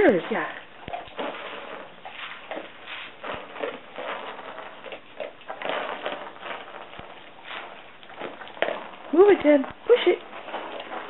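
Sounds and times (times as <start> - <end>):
balls pushed across carpet: 0.0 - 11.0
treats rattling inside dog balls: 0.0 - 11.0.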